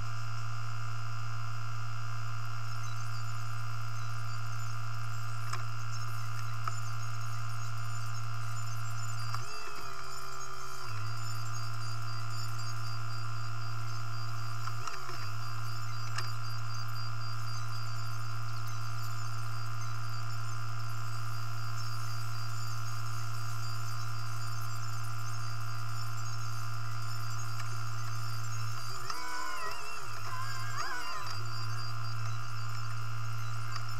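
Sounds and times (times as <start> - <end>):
vehicle engine humming: 25.2 - 33.9.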